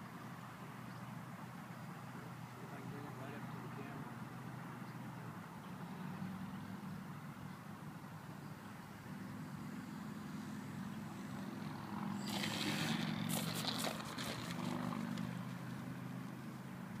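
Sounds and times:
model plane motor hum: 0:09.5 - 0:17.0
wheels rustling scraping through grass: 0:12.1 - 0:16.0.

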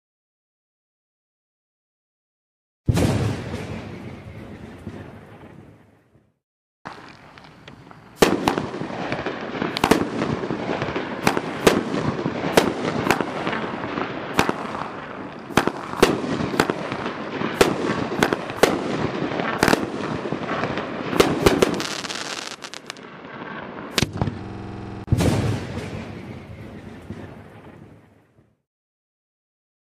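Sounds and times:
firework bangs: 0:02.9 - 0:05.2, 0:06.9 - 0:27.4
firework crackling: 0:06.9 - 0:26.0.

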